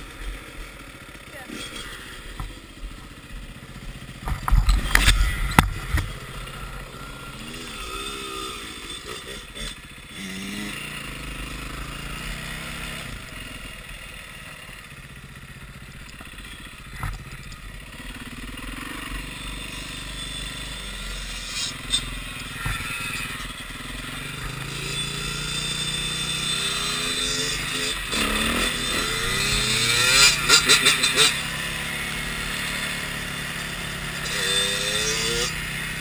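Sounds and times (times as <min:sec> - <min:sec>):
dirt bike engine revving: 0:00.0 - 0:36.0
wind and road noise: 0:00.0 - 0:36.0.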